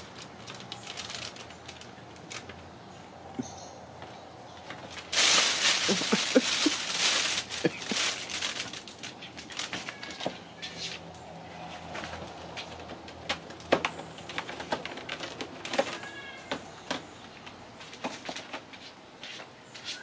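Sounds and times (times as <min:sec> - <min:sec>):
crinkly fabric rustling: 0:00.0 - 0:02.7, 0:04.6 - 0:17.0.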